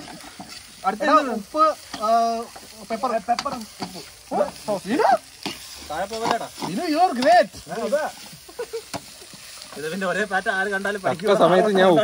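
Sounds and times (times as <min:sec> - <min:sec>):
food sizzling in a frying pan: 0:00.0 - 0:12.0
men talking and laughing: 0:00.1 - 0:12.0.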